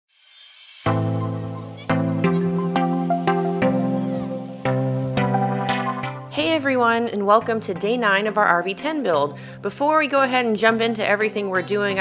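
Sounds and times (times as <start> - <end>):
struck chord: 1.0 - 6.4
airy rising swell: 2.8 - 6.3.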